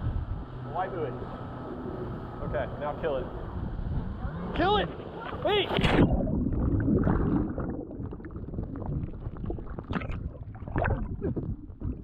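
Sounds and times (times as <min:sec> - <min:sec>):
bubble crackles: 0:05.8 - 0:12.0
underwater churning bubbles: 0:05.8 - 0:12.0.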